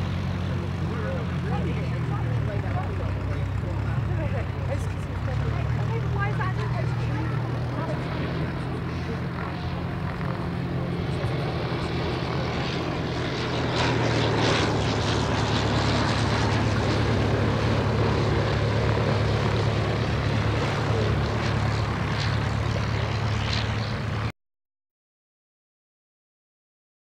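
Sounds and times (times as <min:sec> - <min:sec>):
propeller aircraft engine drone: 0:00.0 - 0:24.4.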